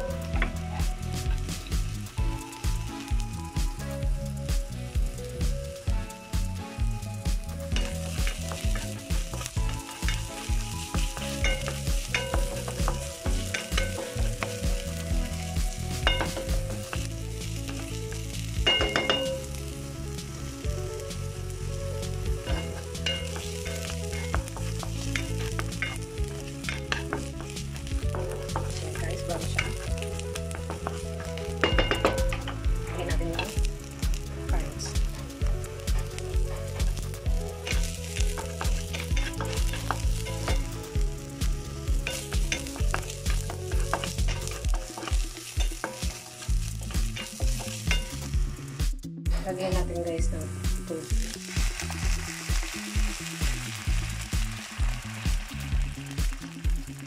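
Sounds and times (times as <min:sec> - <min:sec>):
onion and garlic sizzling in oil: 0:00.0 - 0:57.0.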